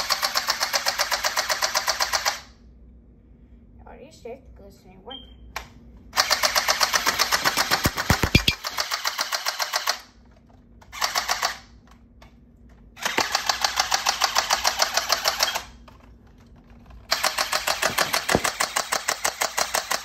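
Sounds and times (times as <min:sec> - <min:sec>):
toy blaster firing full-auto bursts: 0:00.0 - 0:02.5, 0:06.2 - 0:10.1, 0:11.0 - 0:11.7, 0:13.0 - 0:15.8, 0:17.1 - 0:20.0.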